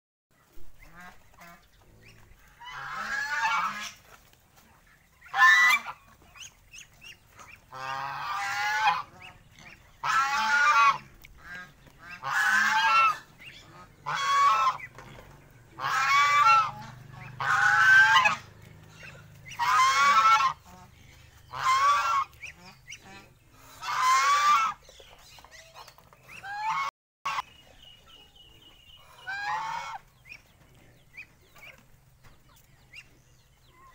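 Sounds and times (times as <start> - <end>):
goose honking: 0.8 - 24.9, 26.2 - 27.5, 29.0 - 30.5.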